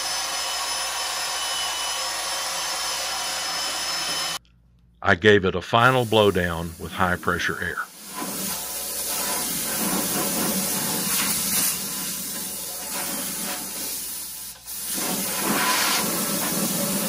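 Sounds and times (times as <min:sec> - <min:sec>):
compressed air blow gun hissing: 0:05.9 - 0:17.0.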